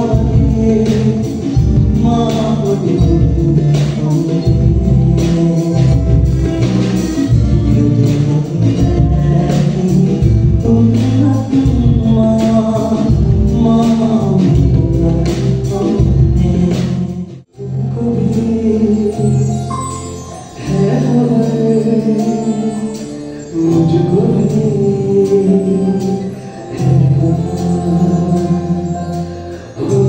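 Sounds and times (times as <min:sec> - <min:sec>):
drums with steady beat: 0:00.0 - 0:17.5
keyboard: 0:00.0 - 0:30.0
man singing: 0:00.0 - 0:30.0.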